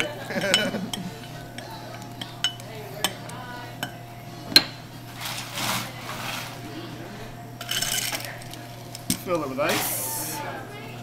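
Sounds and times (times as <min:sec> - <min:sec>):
rustling scrape: 0:05.1 - 0:06.6.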